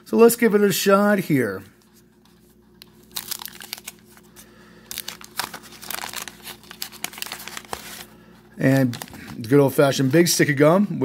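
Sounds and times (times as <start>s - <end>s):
wax paper wrapper tearing and crinkling: 2.7s - 9.6s.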